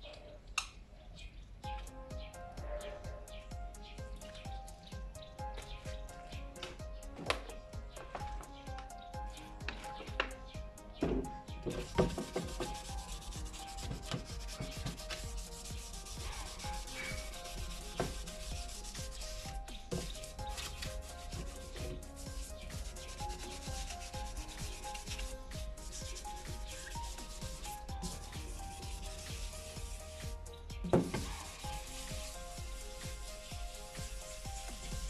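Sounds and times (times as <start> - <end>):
sanding block rubbing strokes: 11.6 - 35.0.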